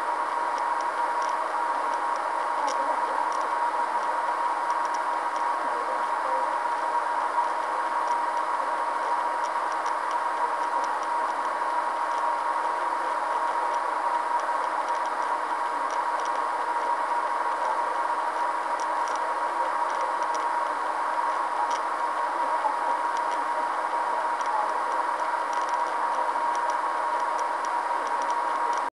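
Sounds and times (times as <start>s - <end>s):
constant high whine: 0.0s - 28.9s.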